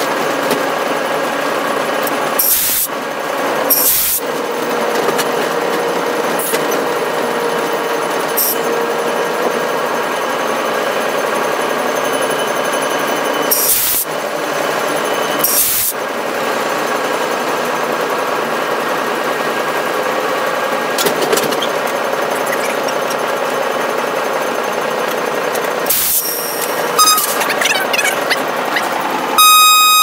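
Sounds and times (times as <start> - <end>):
locomotive cab running noise: 0.0 - 30.0
steady whining tones: 19.5 - 30.0.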